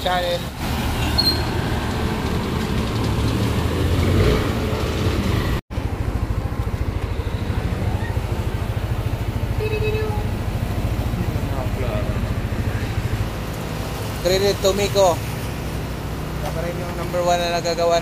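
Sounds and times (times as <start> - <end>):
motorcycle engine idling: 5.7 - 13.4.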